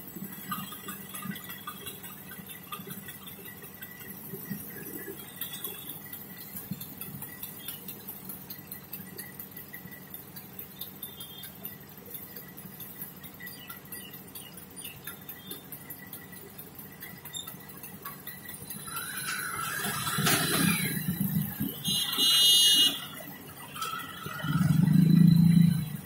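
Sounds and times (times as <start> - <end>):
idling vehicle engines hum: 0.0 - 26.0.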